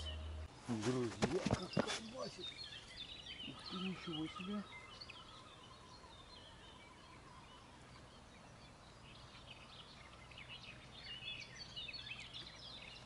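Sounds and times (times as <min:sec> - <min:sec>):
faint low hum: 0:00.0 - 0:01.8
birds chirping and trilling: 0:00.0 - 0:13.0.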